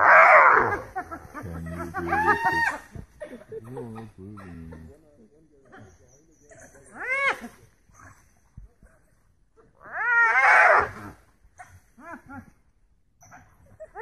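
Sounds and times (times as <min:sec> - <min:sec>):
dogs and hyenas yelping: 0:00.0 - 0:03.0, 0:09.8 - 0:11.9, 0:13.2 - 0:14.0.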